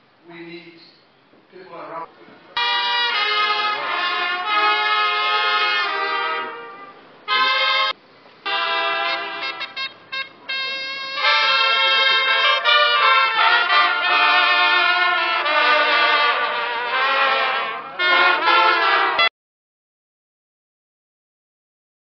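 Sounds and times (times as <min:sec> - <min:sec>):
brass band playing: 0:02.6 - 0:19.3.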